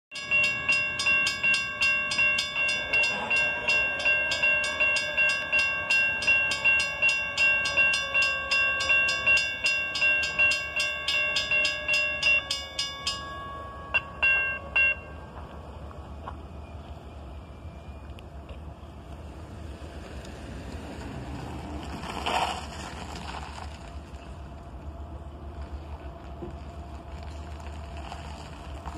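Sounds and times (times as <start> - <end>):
crossing bell dinging: 0.1 - 18.6
low wind rumble: 9.5 - 28.9.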